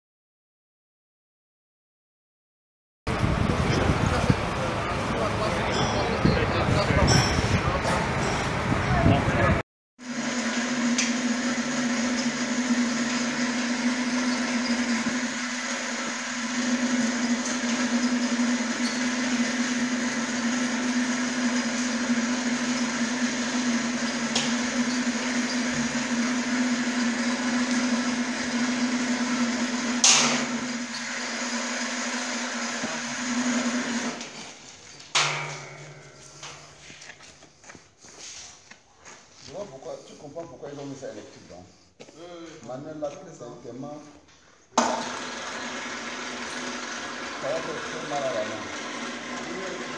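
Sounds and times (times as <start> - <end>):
chain hoist motor humming: 10.4 - 34.4, 45.0 - 49.9
metal clank: 30.0 - 30.6, 35.1 - 37.0.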